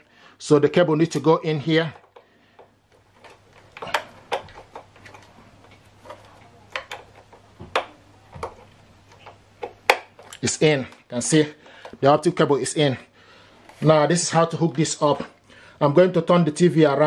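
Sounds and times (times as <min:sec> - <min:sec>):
faint low hum: 0:00.0 - 0:17.0
plastic plug clicks and taps: 0:06.2 - 0:08.6.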